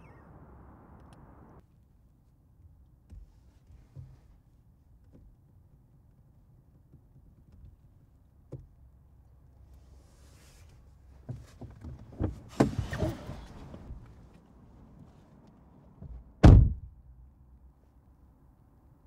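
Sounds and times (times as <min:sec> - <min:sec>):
clicks and clunks in car cabin: 0:06.7 - 0:09.0, 0:11.2 - 0:16.9.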